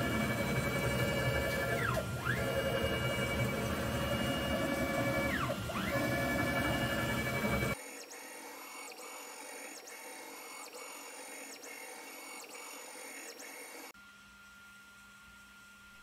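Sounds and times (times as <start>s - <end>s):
stepper motors whining: 0.0s - 8.0s.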